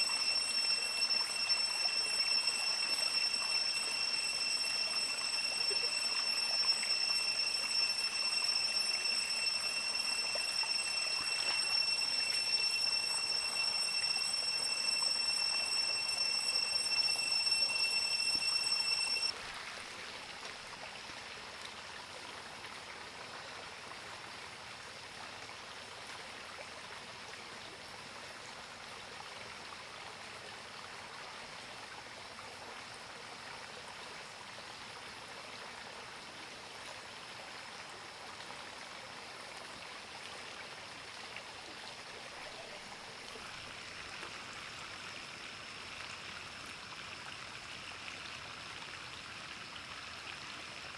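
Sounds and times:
high-pitched whine: 0:00.0 - 0:19.4
river water flowing: 0:00.0 - 0:50.9.

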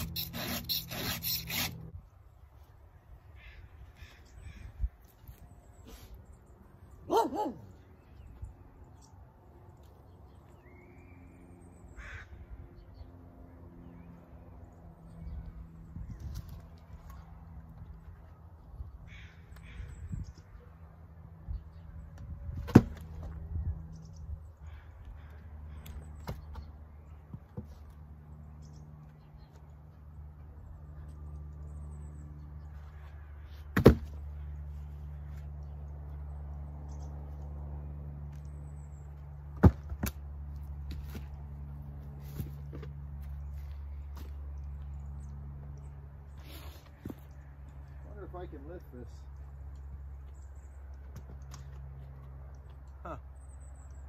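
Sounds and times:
crow cawing: 0:03.4 - 0:04.7, 0:12.0 - 0:12.4, 0:19.1 - 0:19.9, 0:24.6 - 0:25.8
log landing with a thud: 0:22.5 - 0:23.4, 0:33.7 - 0:34.2, 0:39.6 - 0:40.2.

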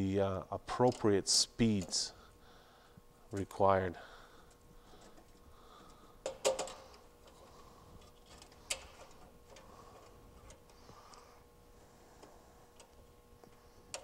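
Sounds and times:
clicks of wires in metal box: 0:06.2 - 0:06.9.

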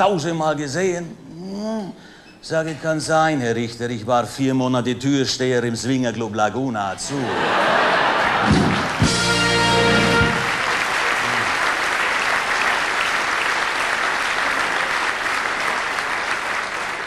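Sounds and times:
audience applauding: 0:07.4 - 0:17.0
band playing held chord: 0:08.5 - 0:10.7.

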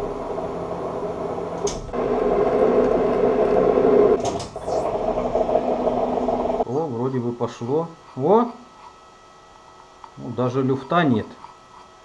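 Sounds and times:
lathe machine hum: 0:00.0 - 0:06.7.

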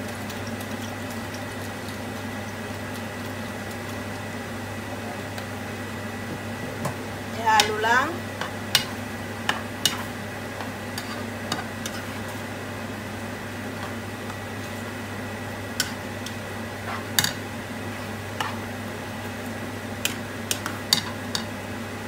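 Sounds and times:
steady low hum: 0:00.0 - 0:22.0
spatula stirring sauce in pan: 0:08.4 - 0:12.5, 0:15.7 - 0:21.6.

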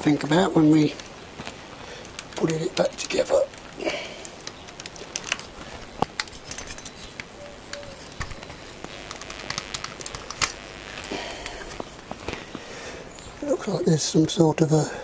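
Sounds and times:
camera handling rustle: 0:04.3 - 0:10.6.

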